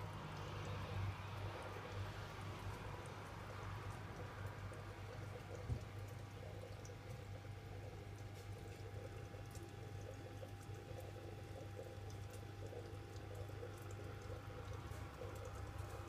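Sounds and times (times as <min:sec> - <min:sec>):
aquarium equipment hum: 0:00.0 - 0:16.0
water trickling: 0:00.0 - 0:16.0
small ticks: 0:08.1 - 0:16.0.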